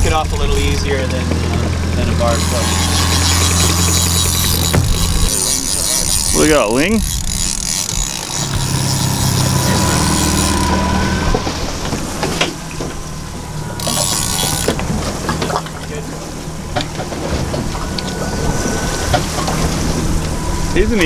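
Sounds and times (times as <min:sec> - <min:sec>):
outboard motors humming: 0:00.0 - 0:21.0
fishing reel clicking and ratcheting: 0:02.3 - 0:11.0, 0:13.7 - 0:14.9.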